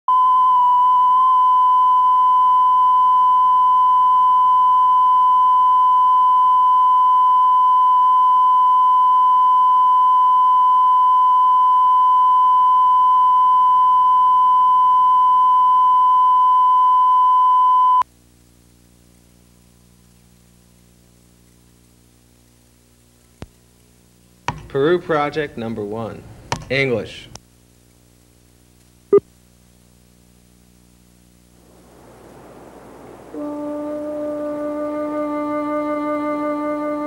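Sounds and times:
tape hum and hiss: 0:00.1 - 0:37.0.

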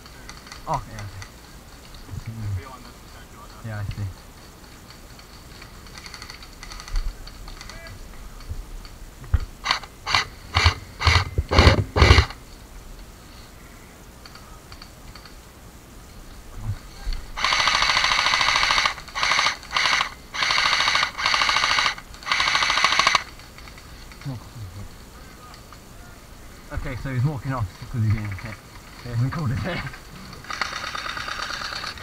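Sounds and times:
airsoft gun full-auto bursts: 0:05.8 - 0:06.9, 0:09.6 - 0:12.4, 0:17.4 - 0:23.8, 0:30.4 - 0:32.0.

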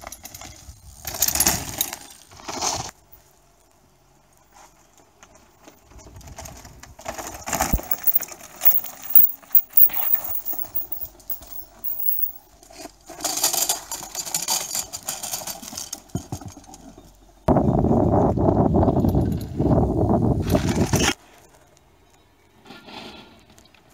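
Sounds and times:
bike rattling on rock: 0:05.3 - 0:12.4.

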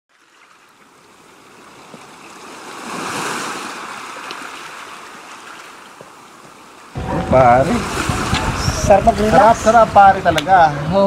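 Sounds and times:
ocean waves on sand beach: 0:00.1 - 0:11.0.

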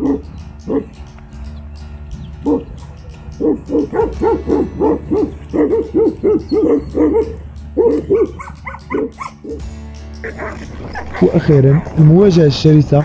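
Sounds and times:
dog barking: 0:00.0 - 0:00.9, 0:03.4 - 0:09.6.

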